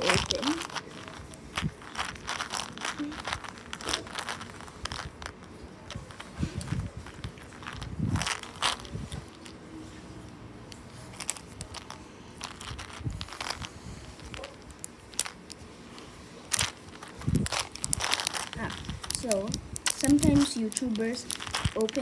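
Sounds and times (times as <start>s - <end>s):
plastic candy packet crinkling: 0.0s - 9.6s, 11.0s - 22.0s.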